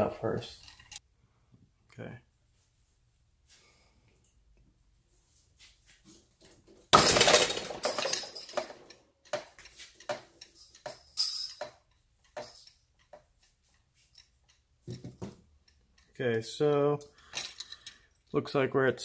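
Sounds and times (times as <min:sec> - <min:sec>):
metal clinks and rattles: 0:00.5 - 0:01.0, 0:06.4 - 0:18.4.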